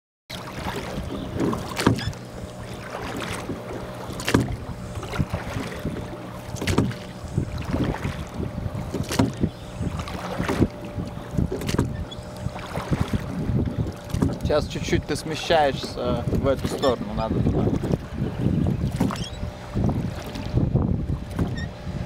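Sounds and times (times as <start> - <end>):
water noise: 0.3 - 22.0
wind on microphone: 0.5 - 22.0
oars knocking in oarlocks: 0.6 - 14.5, 18.8 - 19.3.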